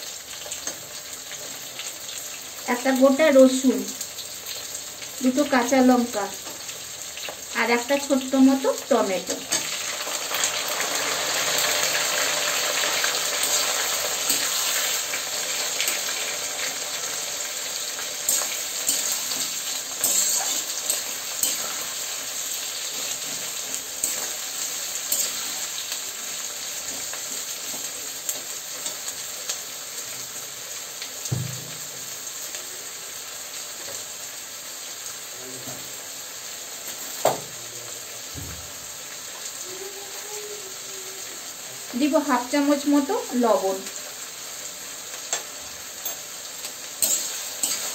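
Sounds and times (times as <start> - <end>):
vegetables sizzling in hot oil: 0.0 - 47.9
metal spatula scraping a pan: 12.8 - 25.9, 47.0 - 47.9.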